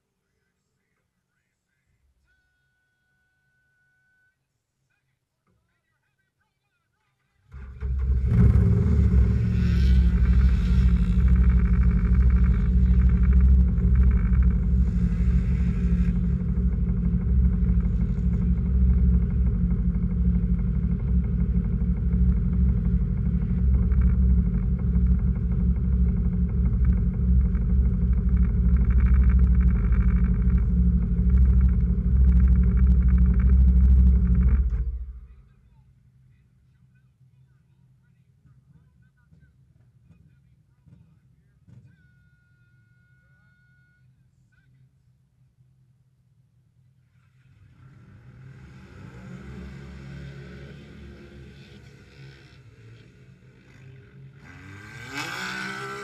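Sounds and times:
vehicle engine running: 7.5s - 35.6s, 47.0s - 56.0s.

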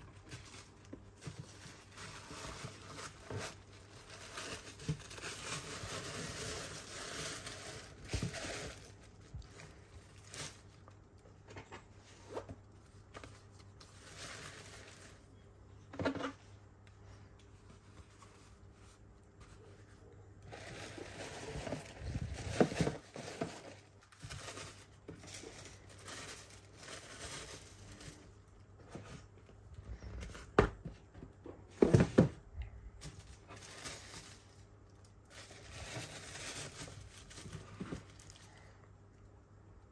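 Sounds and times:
tissue paper rustling: 0.0s - 10.8s, 12.0s - 15.3s, 17.6s - 28.4s, 33.0s - 38.6s.

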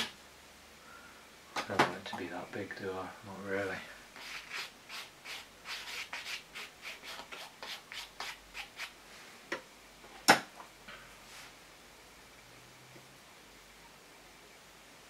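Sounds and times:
scratchy rubbing on canvas: 4.2s - 9.0s.

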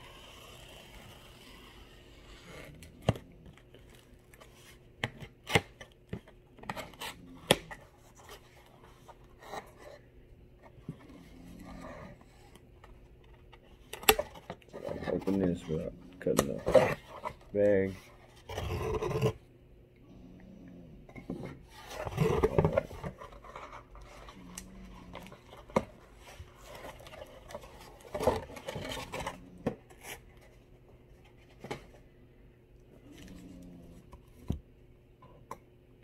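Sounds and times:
cardboard scraping and rubbing: 21.4s - 30.6s.

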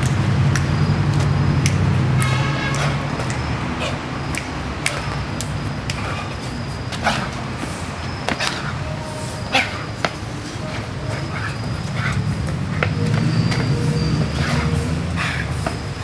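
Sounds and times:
sneakers tapping on brick paving: 9.6s - 14.7s.

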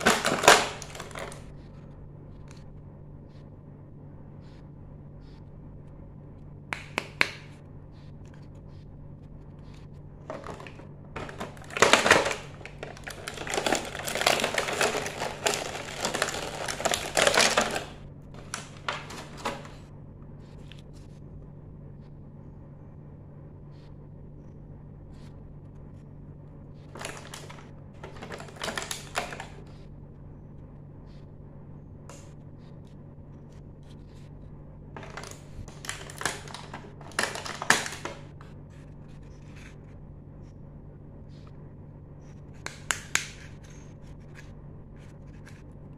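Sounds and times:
plastic pieces clicking and rustling: 0.0s - 1.4s, 10.2s - 19.8s, 26.9s - 29.6s, 35.0s - 38.2s
low steady hum: 0.0s - 45.9s.

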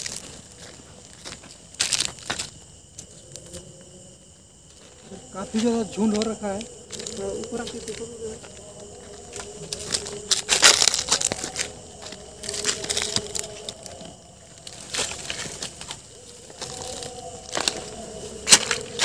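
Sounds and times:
footsteps crunching through dry grass: 0.0s - 3.2s, 4.5s - 19.0s
dry stems rustling and snapping: 5.6s - 19.0s.

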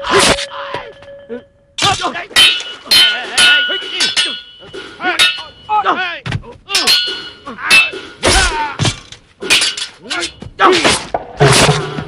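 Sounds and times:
swords clashing: 0.0s - 0.7s, 1.8s - 6.0s, 6.7s - 12.0s
people shouting: 0.0s - 0.9s, 1.8s - 11.0s.

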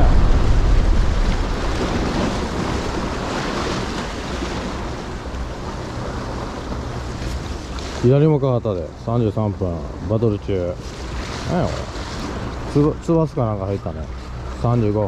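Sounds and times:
wind buffeting microphone: 0.0s - 7.6s
sea surf breaking on breakwater: 0.0s - 15.0s.

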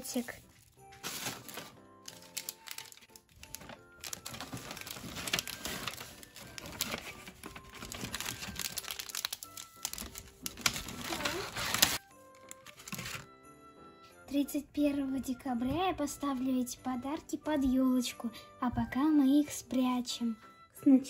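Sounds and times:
paper bag and wrappers rustling: 0.0s - 13.3s
soft background music: 0.0s - 21.0s.

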